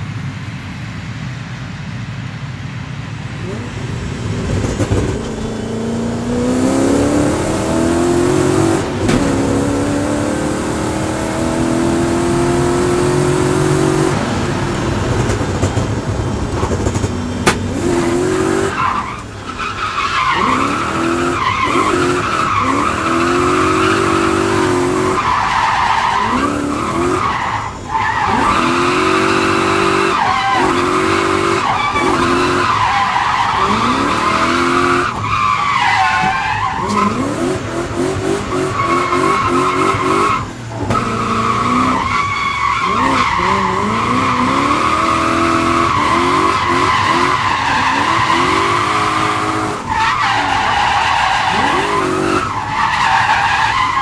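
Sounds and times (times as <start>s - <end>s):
car engine revving: 3.3s - 54.0s
tyres squealing: 38.7s - 54.0s.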